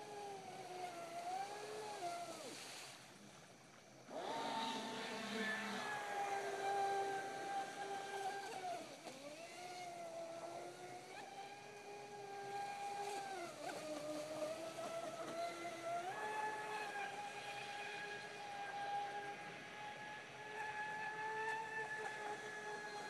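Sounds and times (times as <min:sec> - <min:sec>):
toy boat motor whining: 0:00.0 - 0:03.1, 0:03.9 - 0:23.0.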